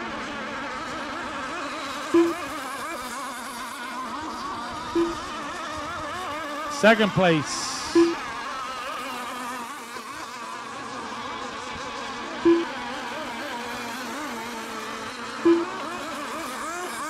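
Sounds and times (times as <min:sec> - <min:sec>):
rc boat engines buzzing: 0:00.0 - 0:17.0
short loud beeps: 0:02.2 - 0:02.4, 0:05.0 - 0:05.2, 0:06.9 - 0:08.2, 0:12.5 - 0:12.8, 0:15.5 - 0:15.8.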